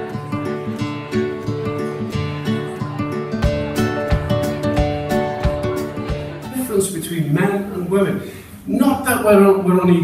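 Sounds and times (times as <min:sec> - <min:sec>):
acoustic guitar music with beat: 0:00.0 - 0:07.0.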